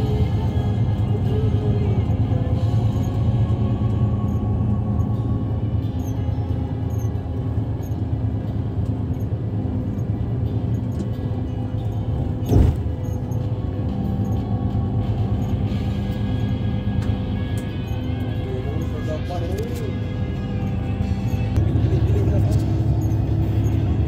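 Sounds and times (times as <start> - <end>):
music playing: 0.0 - 24.0
vehicle engine and road drone: 0.0 - 24.0
thump: 12.4 - 12.9.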